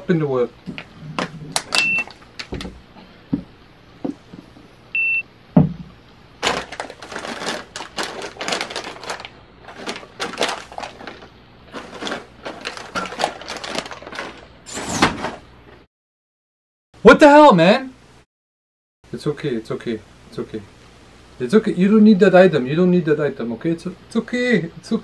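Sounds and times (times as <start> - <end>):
items thudding down: 5.5 - 15.5
packaged goods rustling: 6.4 - 15.5.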